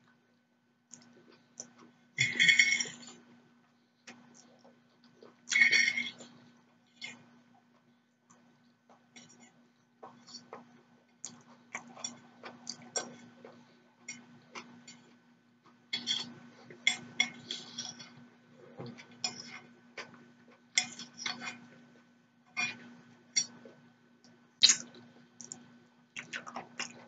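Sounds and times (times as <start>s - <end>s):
fork scraping ceramic plate: 5.5s - 6.3s, 16.0s - 18.2s, 18.8s - 19.8s, 20.8s - 21.7s, 22.5s - 23.6s.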